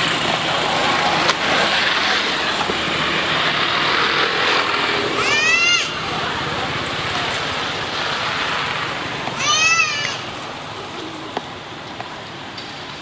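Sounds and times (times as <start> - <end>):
steady rushing noise: 0.0 - 13.0
monkey squealing: 9.4 - 10.3.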